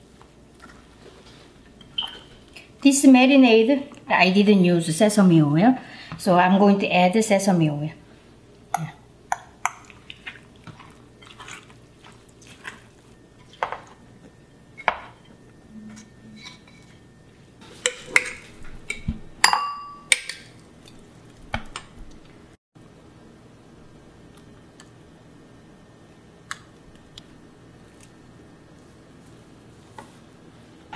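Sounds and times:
wet squishes of mixing: 9.4 - 14.4.

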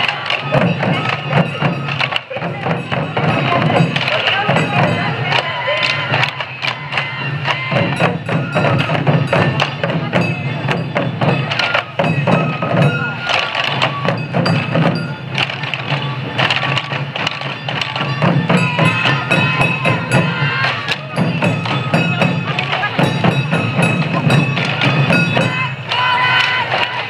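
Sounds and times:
bamboo flute melody: 0.0 - 27.0
taiko drums beaten with sticks: 0.0 - 27.0.

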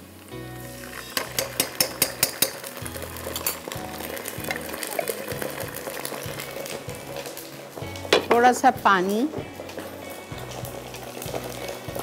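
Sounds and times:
onions sizzling in oil: 0.0 - 12.0
spatula scraping and clicking on wok: 1.0 - 2.7.

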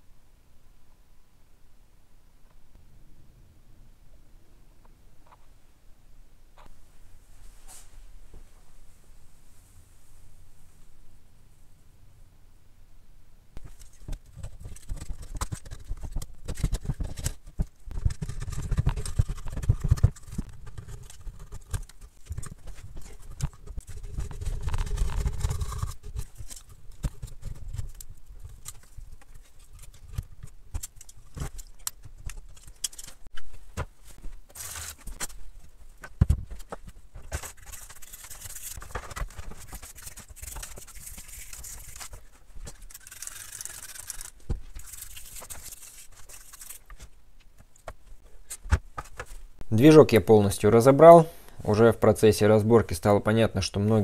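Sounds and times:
gasket scraping: 13.6 - 33.7, 36.4 - 47.1.

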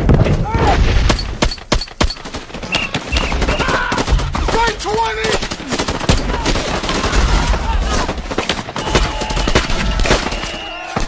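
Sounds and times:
men shouting: 3.3 - 5.3, 6.2 - 11.0.

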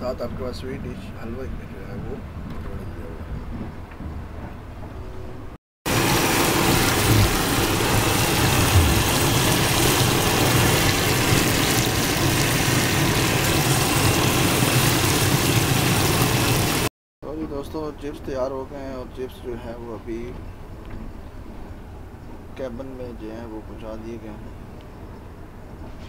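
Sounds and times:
chips deep-frying in oil: 5.9 - 16.9
low engine drone: 5.9 - 16.9.

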